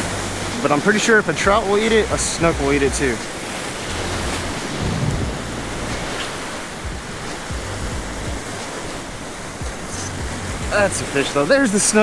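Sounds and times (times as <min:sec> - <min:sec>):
surf washing over rocks: 0:00.0 - 0:12.0
wind buffeting microphone: 0:00.0 - 0:12.0.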